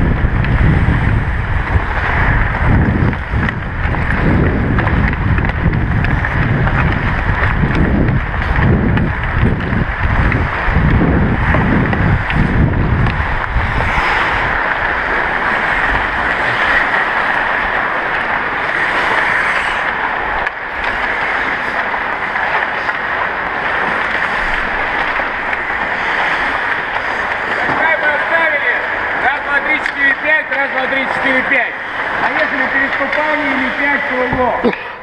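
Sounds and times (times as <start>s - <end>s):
wind buffeting microphone: 0.0s - 35.0s
skates hissing on ice: 13.6s - 28.9s.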